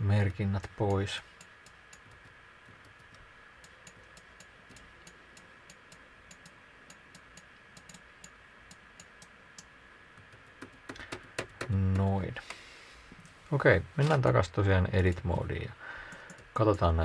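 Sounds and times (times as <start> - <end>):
low microphone hiss: 0.0 - 17.0
mouse and keyboard clicking: 1.4 - 12.6.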